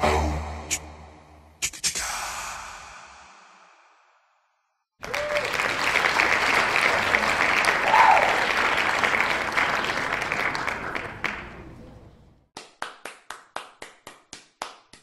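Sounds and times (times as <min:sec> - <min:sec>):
crowd applause: 0:05.0 - 0:12.3.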